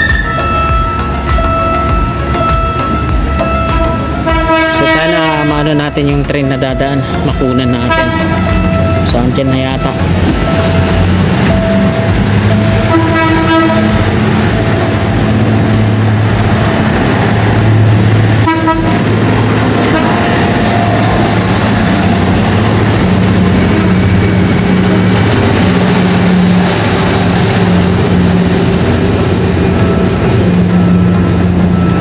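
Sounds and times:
diesel train passing: 0.0 - 32.0
train horn toots: 2.7 - 5.9, 7.4 - 10.9, 11.6 - 14.4, 18.2 - 23.3.

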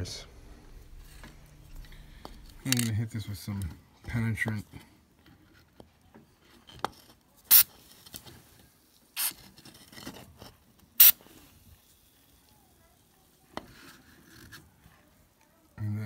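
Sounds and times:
aerosol spray hissing: 11.0 - 11.2.

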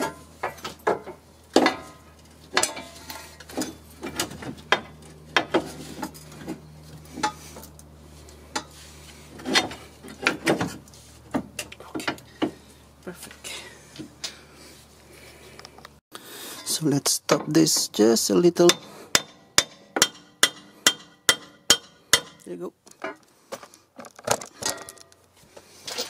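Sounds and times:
metallic clanks and knocks: 0.0 - 6.6, 18.6 - 23.2.

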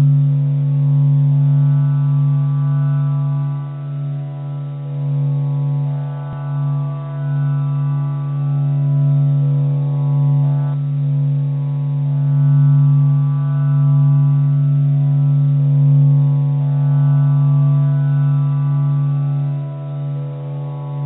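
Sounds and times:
low droning tone with overtones: 0.0 - 21.0.

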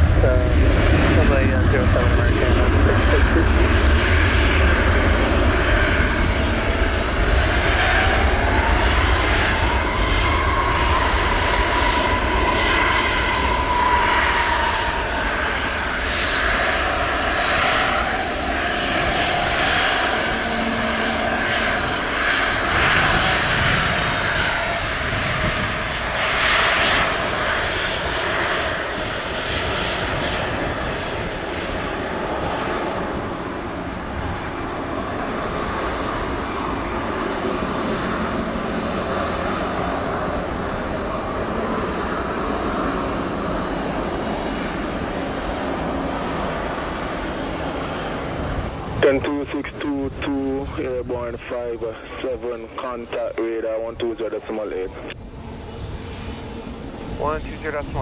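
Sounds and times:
jet engines at takeoff thrust: 0.0 - 58.0.

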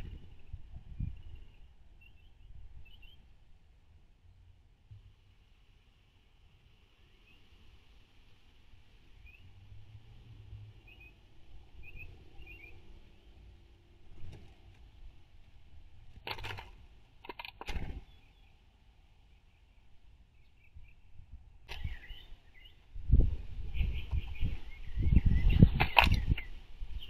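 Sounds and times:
distant small birds chirping: 0.0 - 27.0
bird wing flaps: 17.4 - 18.1.

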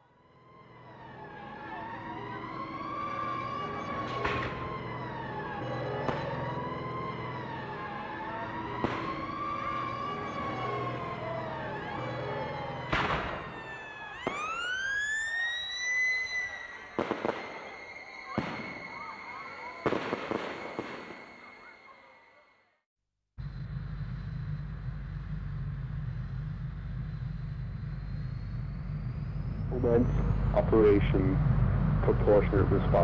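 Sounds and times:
wailing siren: 0.0 - 22.8, 23.4 - 33.0
siren winding up: 0.3 - 20.0
sharp cracks: 4.0 - 5.0, 8.7 - 10.1, 12.9 - 14.7
low hum: 23.4 - 33.0.

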